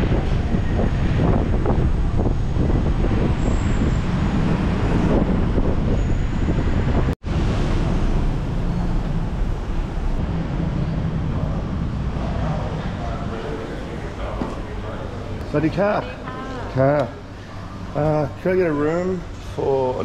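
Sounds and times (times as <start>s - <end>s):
wind buffeting microphone: 0.0s - 13.4s
steady traffic noise: 0.0s - 20.0s.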